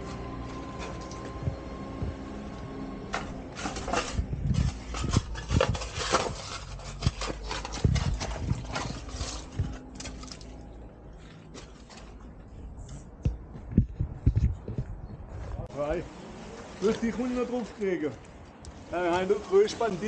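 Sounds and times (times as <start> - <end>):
knocks and scrapes on ladder: 3.1 - 10.4.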